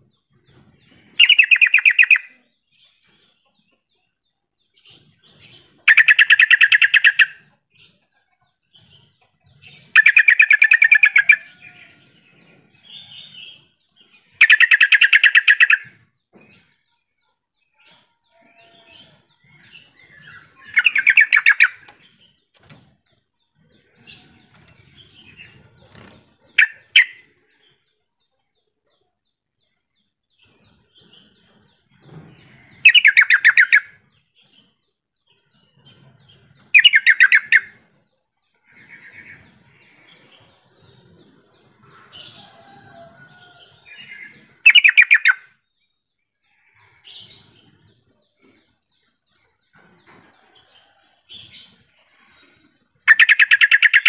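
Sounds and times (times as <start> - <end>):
bulbul singing: 5.8 - 7.4, 19.5 - 22.4, 32.7 - 34.0, 36.7 - 37.8, 43.8 - 45.6, 53.0 - 54.0.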